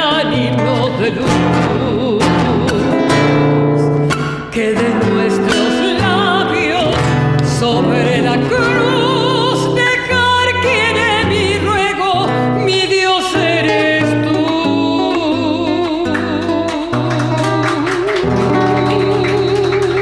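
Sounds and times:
fingerpicked acoustic guitar: 0:00.0 - 0:20.0
woman singing with vibrato: 0:00.0 - 0:20.0.

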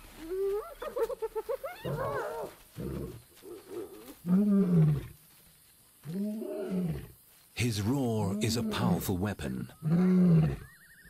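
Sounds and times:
hyenas giggling and yelping: 0:00.3 - 0:02.5.

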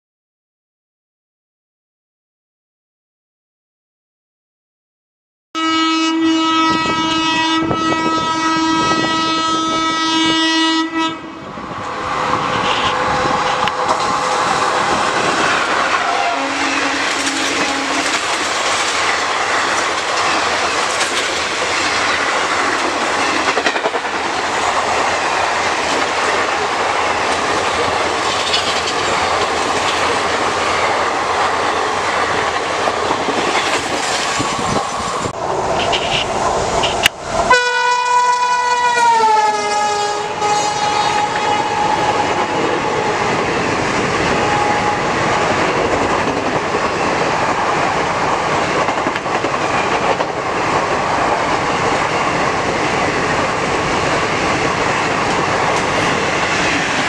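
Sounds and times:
locomotive horn: 0:05.6 - 0:11.5, 0:15.9 - 0:18.3, 0:35.8 - 0:43.2, 0:44.3 - 0:45.3
wheels clattering on track: 0:27.3 - 0:30.4.

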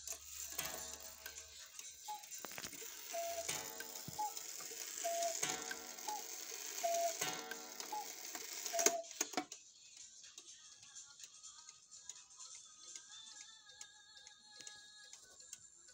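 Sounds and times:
clock mechanism clicks: 0:00.0 - 0:09.6
two-note cuckoo call: 0:02.0 - 0:09.1.

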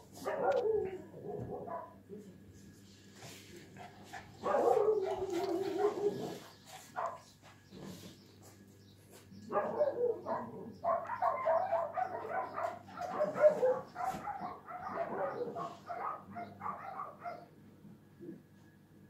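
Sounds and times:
dog barking: 0:00.2 - 0:02.0, 0:04.4 - 0:06.4, 0:07.0 - 0:07.3, 0:09.5 - 0:17.5.

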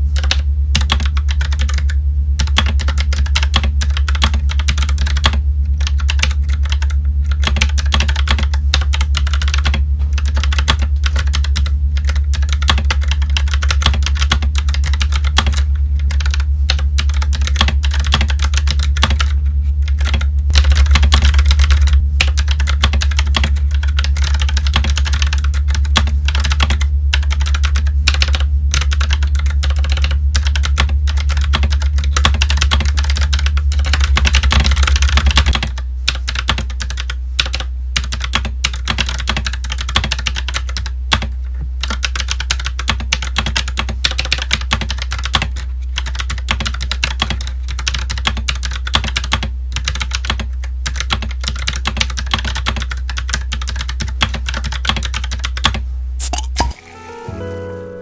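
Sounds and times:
low hum: 0:00.0 - 0:28.7
mechanical keyboard typing: 0:00.2 - 0:56.8.

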